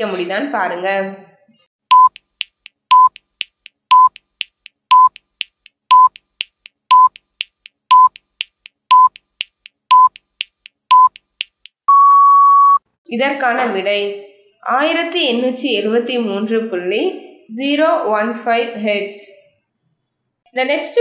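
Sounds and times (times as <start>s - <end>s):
short high beeps: 1.9s - 2.2s, 2.9s - 3.2s, 3.9s - 4.2s, 8.9s - 9.2s, 9.9s - 10.2s
quiet timer ticks: 1.9s - 11.8s.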